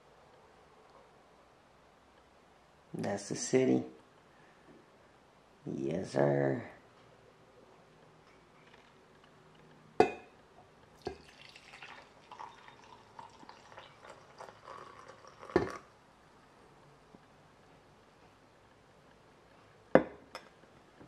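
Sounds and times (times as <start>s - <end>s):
carafe clinking on mug: 11.0s - 15.9s
coffee pouring into mug: 11.0s - 16.0s.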